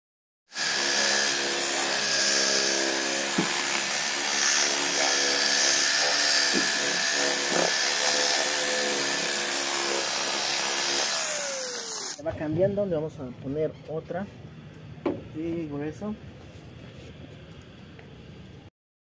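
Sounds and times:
electric polisher motor whine: 0.5 - 12.2.

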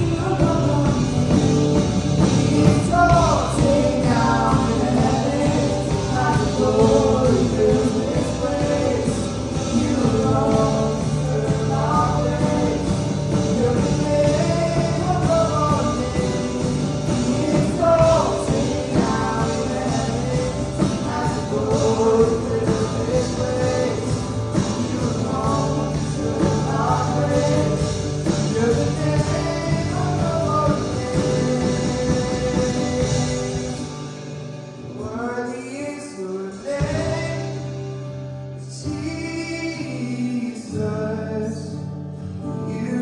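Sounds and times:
woman singing: 0.0 - 33.8
acoustic-electric guitar: 0.0 - 43.0
bass guitar: 0.0 - 43.0
drums: 0.0 - 43.0.

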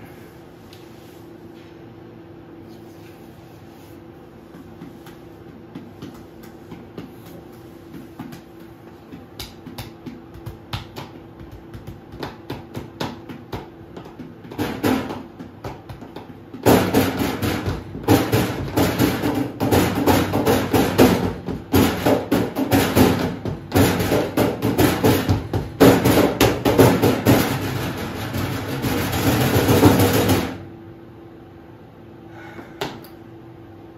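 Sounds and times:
dense rhythmic clatter of knocks: 9.4 - 30.6.

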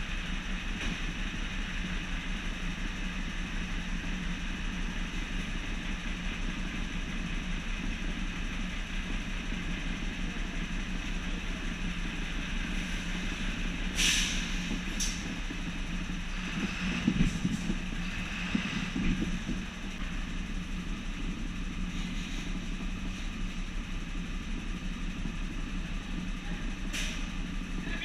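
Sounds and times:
diesel engine idling: 0.0 - 28.0
air brake hisses: 13.9 - 15.2, 26.9 - 27.3.

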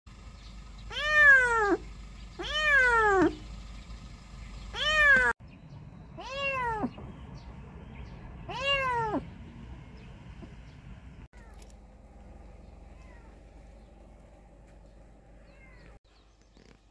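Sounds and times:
kitten meowing: 0.9 - 1.8, 2.4 - 3.4, 4.7 - 5.4, 6.2 - 7.0, 8.5 - 9.2, 13.0 - 13.3, 15.4 - 16.0.

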